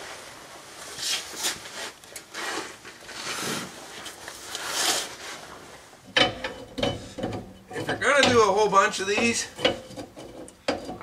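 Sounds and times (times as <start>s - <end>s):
metal tool scraping: 6.2s - 11.0s.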